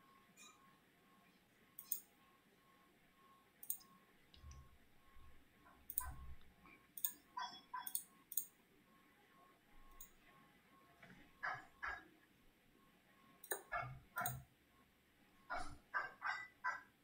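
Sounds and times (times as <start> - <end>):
sharp clicks: 1.8 - 2.1, 3.6 - 4.6, 5.9 - 6.2, 7.0 - 7.2.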